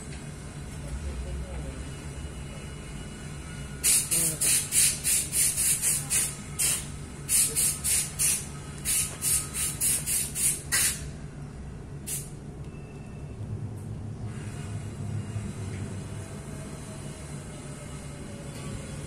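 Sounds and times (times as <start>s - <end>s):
pressurised spray hissing: 3.8s - 11.1s, 12.0s - 12.3s.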